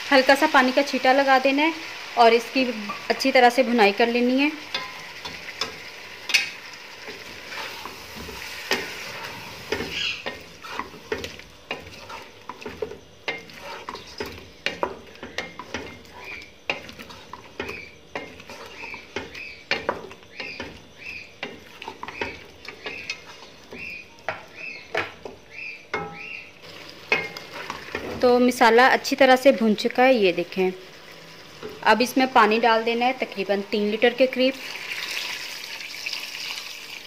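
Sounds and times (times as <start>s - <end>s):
food sizzling in a pot: 0.0s - 37.0s
wooden spatula scraping a pot: 7.1s - 25.1s, 27.1s - 28.4s
spatula knocking against pot: 12.6s - 25.4s.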